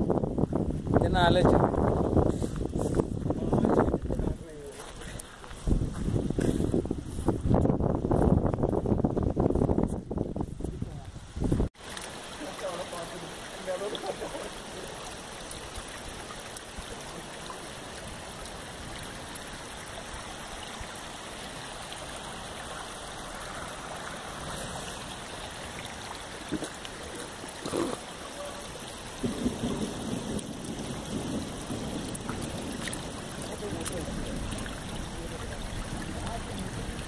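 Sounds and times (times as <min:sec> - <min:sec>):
flowing water rushing: 0:11.4 - 0:37.0.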